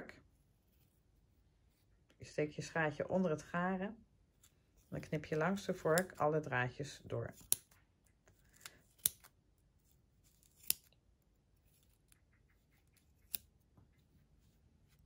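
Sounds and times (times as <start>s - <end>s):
scissors snipping yarn: 5.3s - 6.3s, 7.3s - 9.4s, 10.2s - 14.0s.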